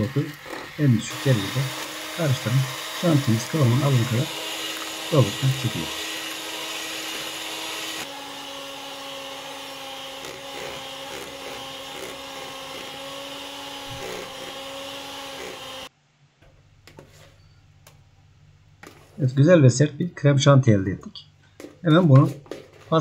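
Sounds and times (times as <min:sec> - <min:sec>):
electric hand mixer whining: 0:00.0 - 0:15.9.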